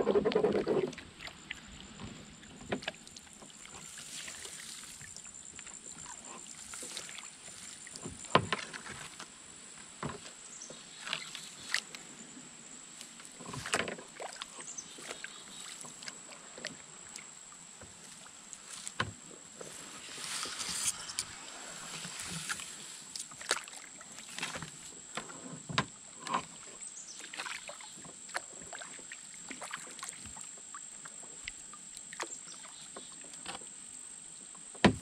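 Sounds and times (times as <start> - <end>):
faint water wash: 0.0 - 9.1, 13.0 - 25.3
paddle splashes and knocks: 0.0 - 11.9, 13.1 - 33.7, 34.6 - 35.0.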